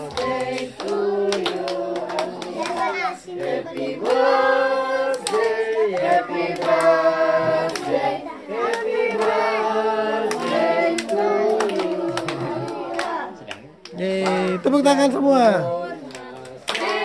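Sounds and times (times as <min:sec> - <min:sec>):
hands clapping: 0:00.0 - 0:04.3, 0:05.1 - 0:07.0, 0:07.6 - 0:08.0, 0:10.3 - 0:14.7, 0:16.1 - 0:17.0
group singing birthday song: 0:00.0 - 0:17.0.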